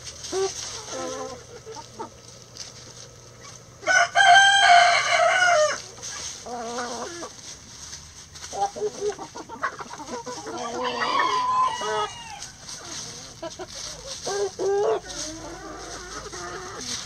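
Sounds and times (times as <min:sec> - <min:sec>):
hens clucking: 0:00.0 - 0:17.0
rooster crowing: 0:03.8 - 0:06.8, 0:10.5 - 0:13.0.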